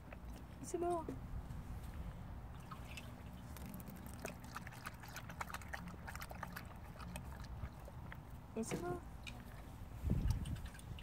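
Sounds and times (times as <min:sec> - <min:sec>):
water dripping: 0:02.5 - 0:08.3
dog lapping water: 0:02.6 - 0:11.0.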